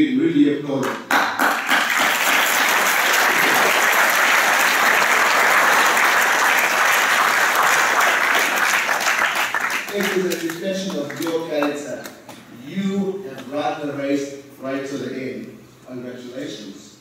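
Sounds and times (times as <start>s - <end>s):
audience applauding: 0.8s - 11.8s.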